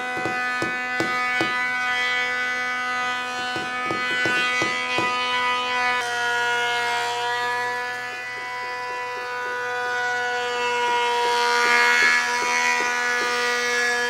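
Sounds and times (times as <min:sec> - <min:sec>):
hammers driving nails: 0:00.0 - 0:06.0, 0:11.1 - 0:13.9.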